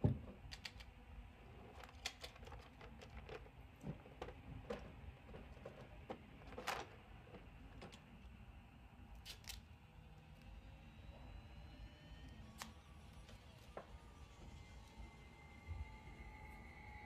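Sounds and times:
rummaging in wooden drawer: 1.8s - 7.9s.

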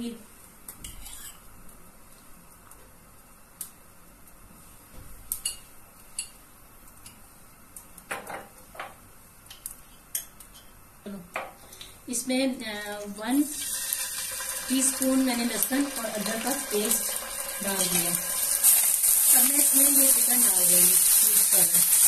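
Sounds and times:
low kitchen hum: 0.0s - 22.0s.

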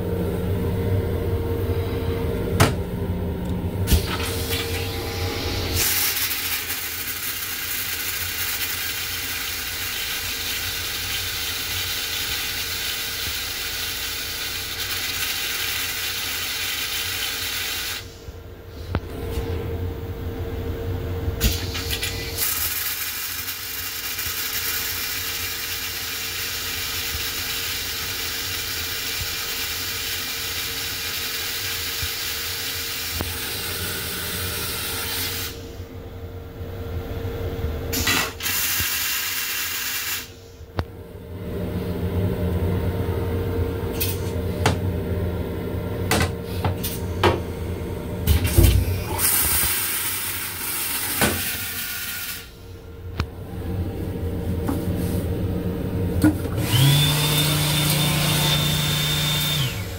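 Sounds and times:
steady hum: 0.0s - 11.9s, 18.0s - 22.4s, 35.5s - 57.0s
toilet flush water hissing: 3.9s - 18.1s, 21.4s - 35.6s, 37.9s - 40.4s, 48.4s - 52.6s, 56.6s - 59.9s.

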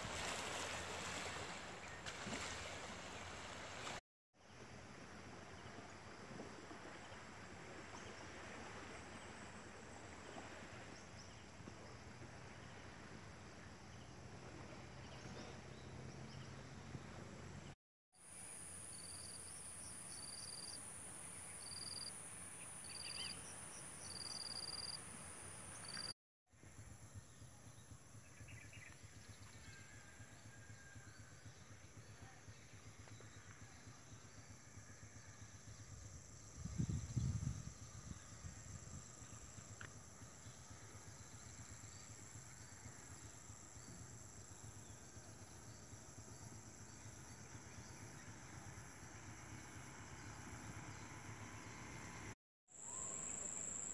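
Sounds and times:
insect chorus buzzing: 18.2s - 26.1s, 52.8s - 53.9s
insect chirps: 18.2s - 28.9s, 31.5s - 53.9s.

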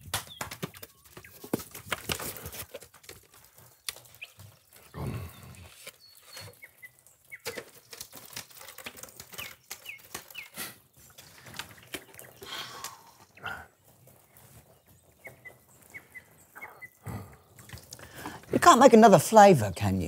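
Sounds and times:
farm animal noises: 0.3s - 20.0s
bird chirps: 3.6s - 7.8s, 9.0s - 18.5s.

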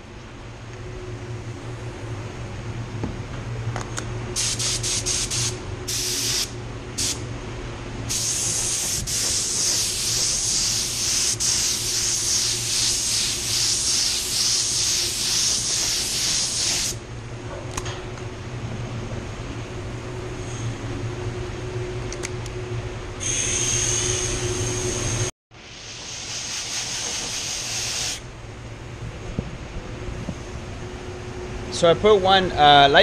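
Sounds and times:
ventilation hum: 0.0s - 33.0s
spray gun hissing: 4.4s - 7.2s, 8.1s - 17.0s, 25.7s - 28.2s.

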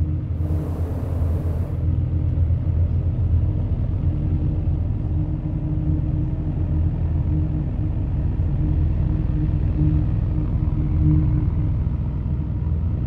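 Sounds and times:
deep drone from steel pipes: 0.0s - 13.0s
faint steady tone: 0.4s - 1.8s
gas burner hiss: 0.4s - 1.8s.

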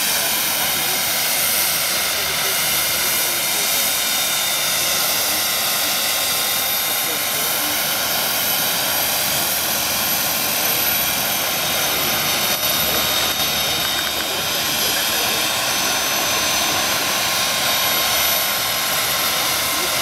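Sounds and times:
helicopter rotor noise: 0.0s - 20.0s
model helicopter turbine whine: 0.0s - 20.0s.

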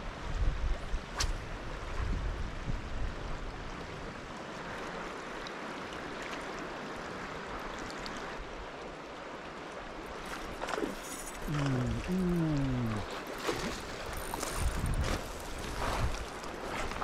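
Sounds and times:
river flowing over stones: 3.6s - 17.0s.

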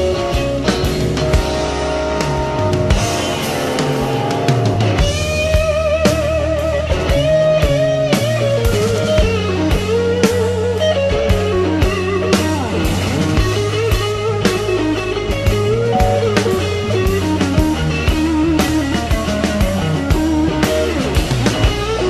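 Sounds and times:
bass line: 0.0s - 21.9s
regular drum beat: 0.0s - 22.0s
wavering electric guitar lead: 0.0s - 22.0s.

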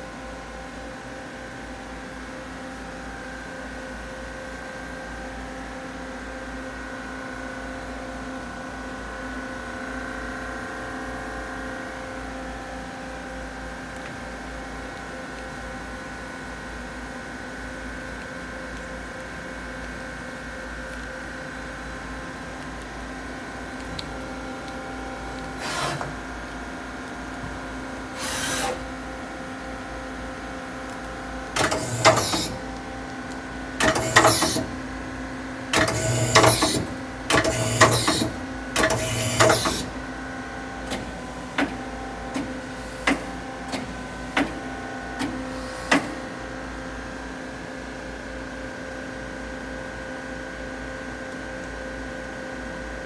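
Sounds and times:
lathe machine hum: 19.3s - 47.1s
short mechanical bursts: 25.6s - 26.1s, 28.1s - 28.8s, 31.6s - 32.6s, 33.8s - 34.7s, 35.8s - 39.9s.

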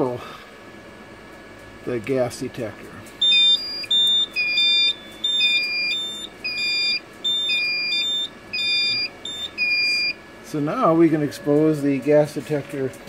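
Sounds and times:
alarm beeping high and low tones: 3.2s - 10.2s.

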